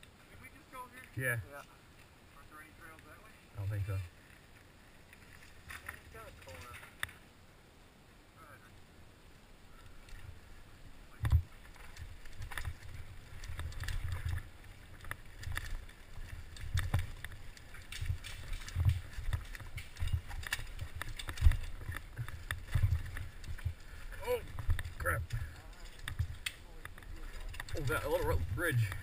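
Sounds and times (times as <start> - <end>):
bike rattling over rocks: 5.2 - 7.2, 11.1 - 29.0
wind rumbling on microphone: 9.6 - 29.0.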